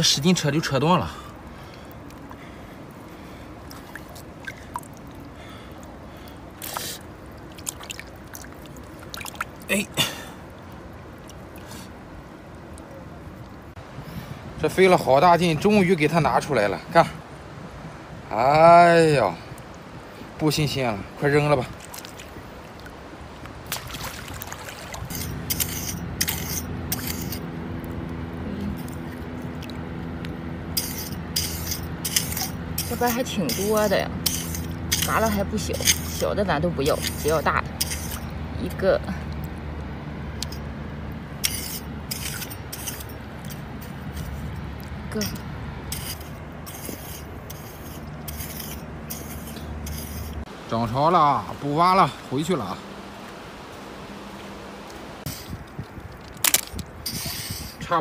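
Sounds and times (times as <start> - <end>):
seawater sloshing and dripping: 0.0 - 13.8, 21.3 - 50.6, 51.8 - 57.9
low steady hum: 19.4 - 57.8
short splash: 23.6 - 25.2
rake scraping through wet sand: 24.9 - 27.6, 30.7 - 38.8, 41.4 - 50.5, 55.2 - 55.7, 56.4 - 58.0.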